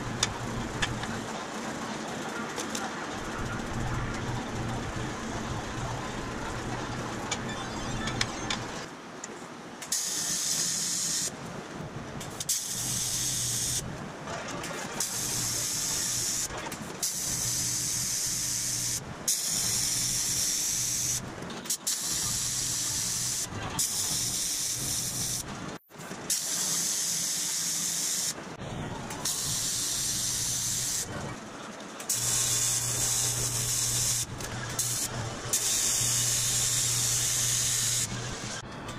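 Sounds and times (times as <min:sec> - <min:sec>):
welding arc hissing: 0:09.9 - 0:11.3, 0:12.4 - 0:13.8, 0:15.0 - 0:25.5, 0:26.3 - 0:28.4, 0:29.2 - 0:31.1, 0:32.1 - 0:38.6
steady low hum: 0:32.2 - 0:38.9.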